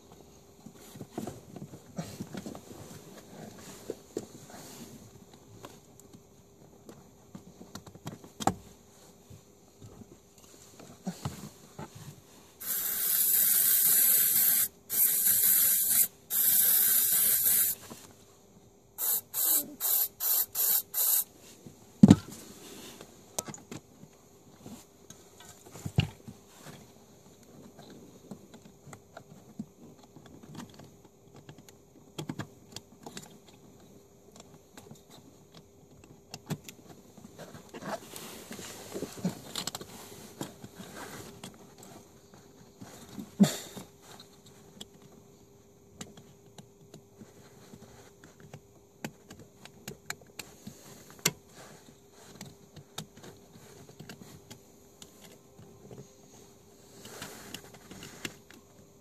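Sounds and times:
aerosol spray hissing: 12.6s - 17.8s, 19.0s - 21.3s.

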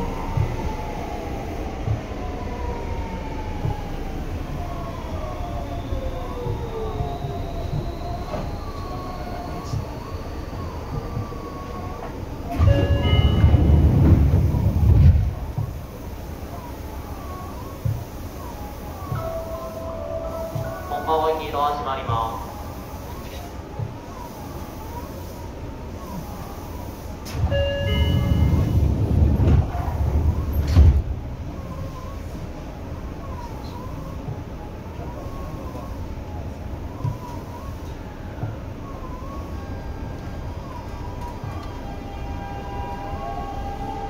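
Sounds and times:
train clunk: 0.0s - 2.8s, 3.5s - 5.0s, 5.8s - 16.0s, 19.0s - 22.4s, 27.2s - 31.2s
train low rumble: 0.0s - 44.0s.

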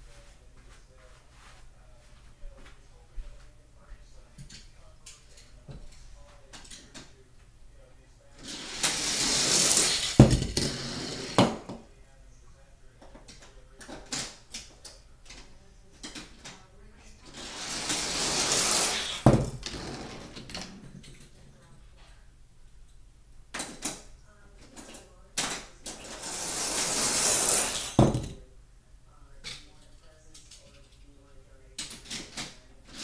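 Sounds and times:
toy cars rolling on plastic track: 8.4s - 11.4s, 17.3s - 19.2s, 25.9s - 28.0s
toy cars clacking on floor: 8.4s - 11.8s, 25.5s - 28.0s.

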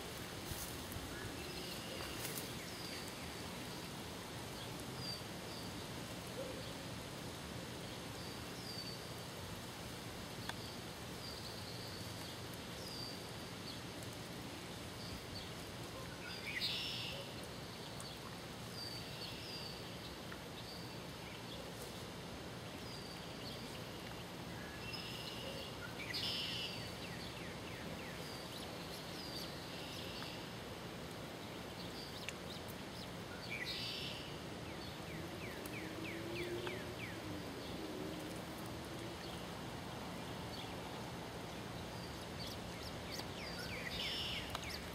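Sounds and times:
ducklings peeping: 42.1s - 44.9s.

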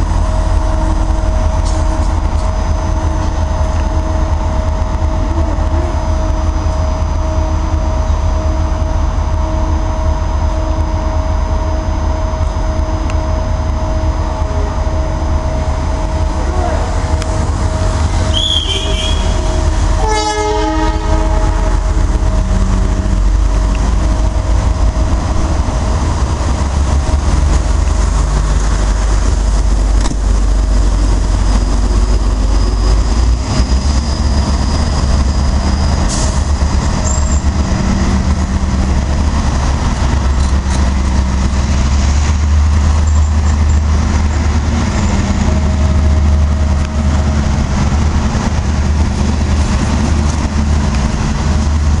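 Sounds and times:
train wheels rumbling on track: 0.0s - 52.0s
train horn: 18.2s - 22.0s.

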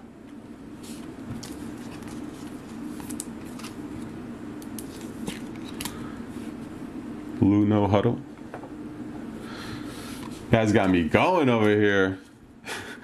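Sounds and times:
low room hum: 0.0s - 13.0s
plastic sleeve rustling: 0.9s - 6.0s.

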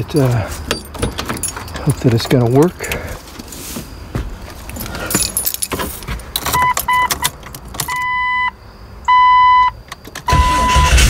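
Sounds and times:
keys jangling: 0.0s - 3.7s, 4.5s - 8.0s
dashboard warning chime beeps: 6.5s - 11.0s.

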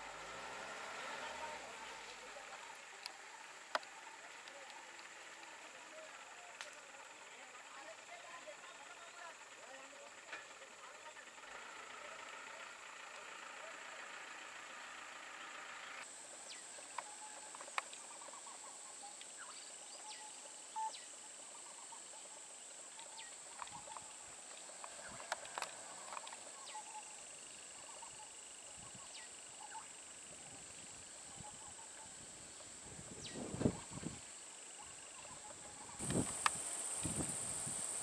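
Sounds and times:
high-pitched insect drone: 25.0s - 38.0s.

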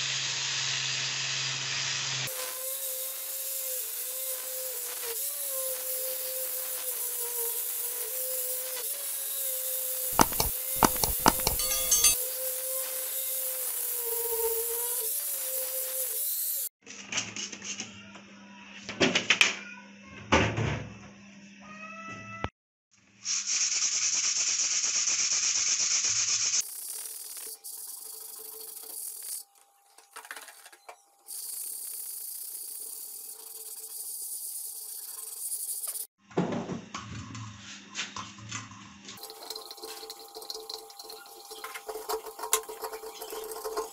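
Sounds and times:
angle grinder sanding metal: 1.0s - 16.7s, 31.4s - 36.1s
knocks and clicks: 10.2s - 12.2s.

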